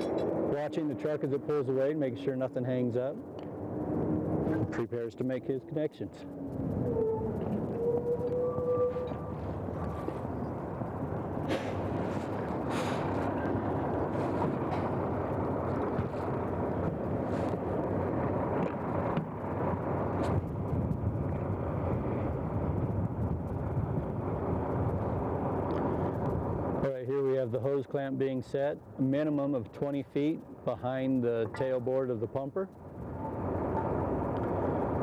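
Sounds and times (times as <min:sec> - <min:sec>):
diesel engine running: 0:00.0 - 0:26.8.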